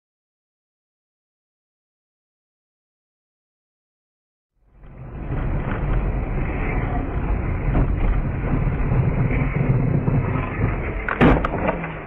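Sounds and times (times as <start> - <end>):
wind rumble: 4.6 - 12.0
tyre rumble: 4.8 - 12.0.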